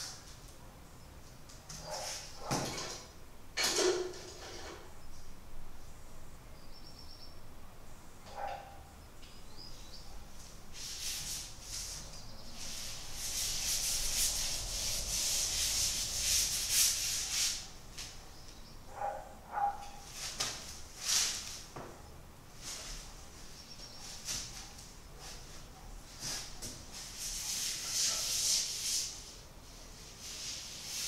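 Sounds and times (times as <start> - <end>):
paintbrush scrubbing canvas: 10.8 - 17.7, 26.2 - 29.3.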